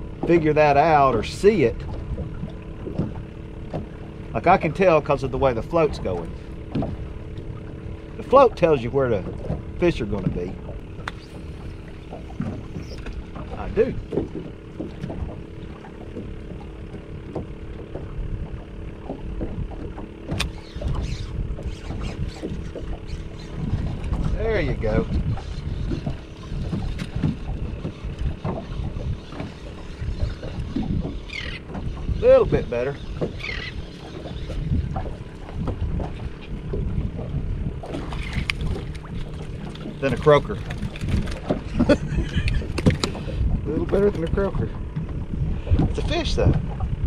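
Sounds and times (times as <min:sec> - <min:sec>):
wind and water rumble: 0:00.0 - 0:47.0
sharp click: 0:11.0 - 0:11.4, 0:20.3 - 0:21.0.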